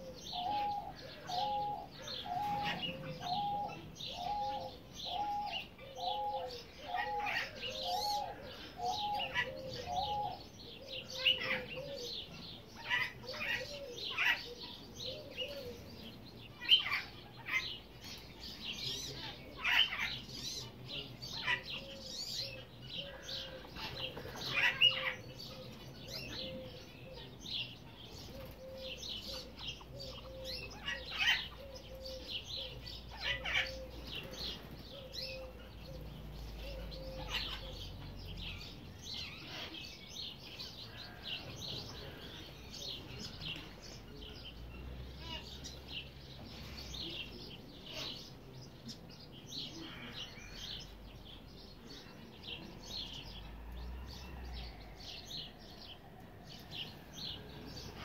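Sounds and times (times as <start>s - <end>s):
ducklings peeping: 28.0s - 38.8s.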